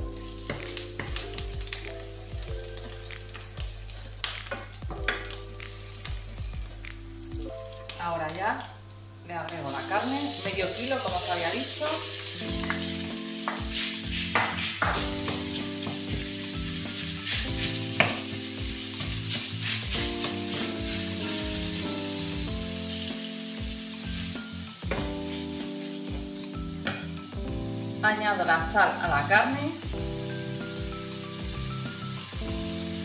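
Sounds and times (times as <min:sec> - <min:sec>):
minced meat sizzling in oil: 0:00.0 - 0:33.0
wooden spatula tapping pan: 0:00.2 - 0:02.1, 0:12.6 - 0:16.4, 0:17.4 - 0:21.0.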